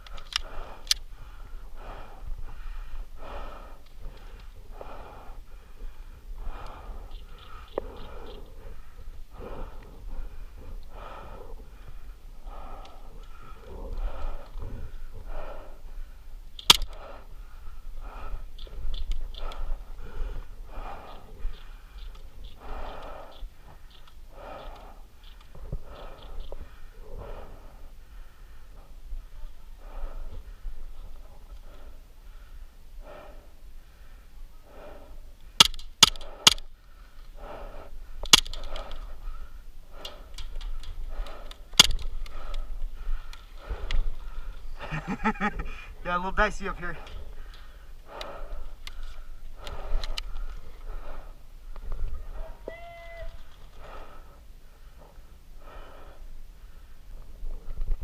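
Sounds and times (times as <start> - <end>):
person breathing hard: 0.0 - 58.0
sharp crack: 16.6 - 17.2, 35.6 - 36.7, 38.2 - 39.0, 40.8 - 42.6.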